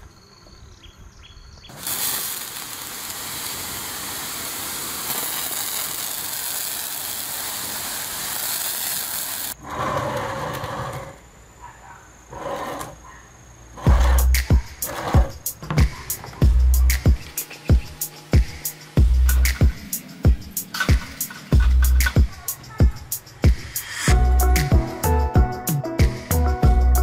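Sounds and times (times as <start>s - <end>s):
pressurised water jet hissing: 1.7s - 9.6s.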